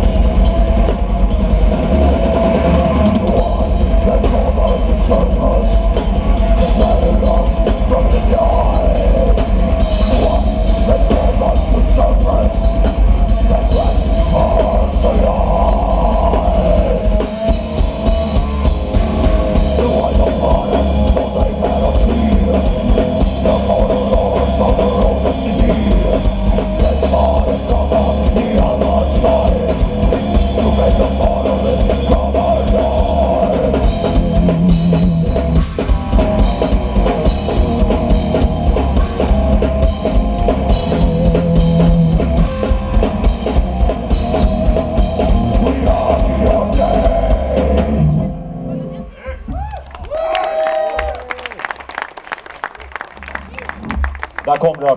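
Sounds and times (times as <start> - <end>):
drum kit: 0.0 - 48.3, 52.8 - 54.9
distorted electric guitars: 0.0 - 49.6, 52.7 - 54.9
bass guitar: 0.0 - 54.9
person singing: 2.5 - 18.2, 19.1 - 35.6, 39.2 - 49.5.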